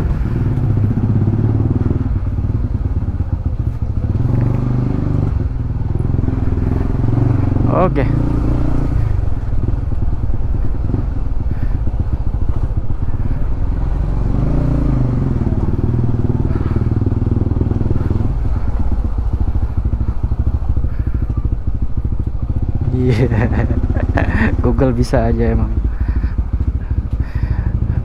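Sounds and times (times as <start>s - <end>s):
motorcycle engine running: 0.0s - 28.0s.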